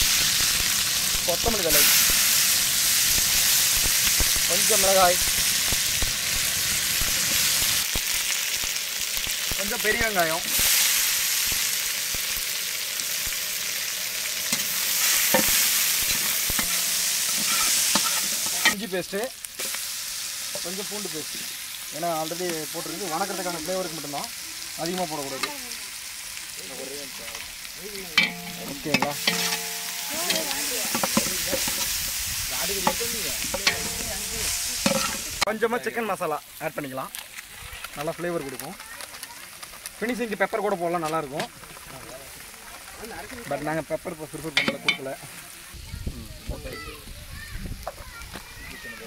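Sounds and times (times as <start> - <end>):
vegetables sizzling in hot oil: 0.0 - 49.0
metal ladle scraping a pot: 15.3 - 18.8, 28.2 - 32.0, 32.8 - 35.5
ladle scraping a pot: 28.2 - 32.0.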